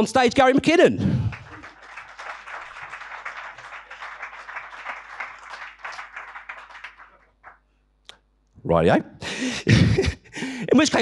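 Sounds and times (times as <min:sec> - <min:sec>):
audience applauding: 0:01.1 - 0:07.6.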